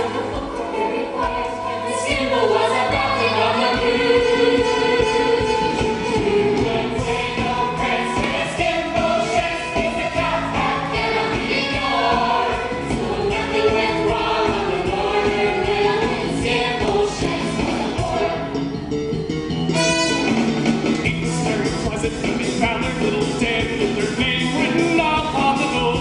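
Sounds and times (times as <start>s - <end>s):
cast singing together: 0.0s - 18.5s
live pit band playing: 18.0s - 26.0s.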